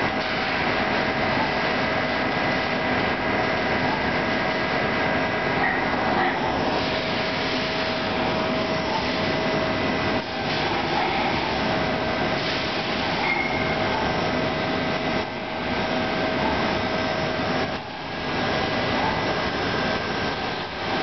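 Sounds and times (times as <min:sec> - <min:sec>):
lathe coolant spraying hiss: 0:06.5 - 0:21.0.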